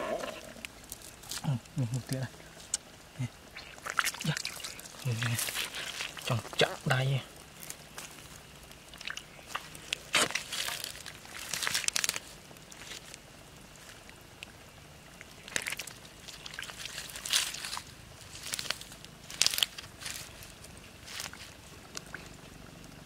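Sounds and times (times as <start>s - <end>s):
dry twigs crackling and rustling: 0.0s - 22.4s.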